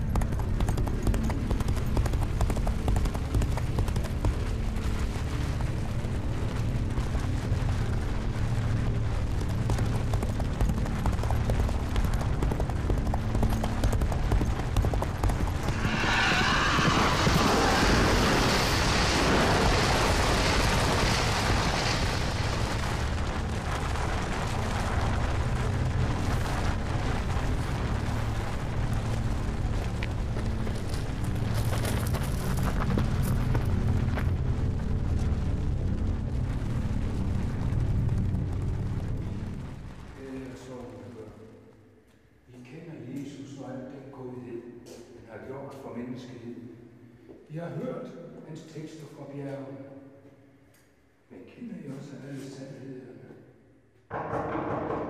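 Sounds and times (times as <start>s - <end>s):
horse hooves galloping: 0.0s - 40.2s
low rumble: 0.4s - 40.4s
loud rushing noise: 15.3s - 28.4s.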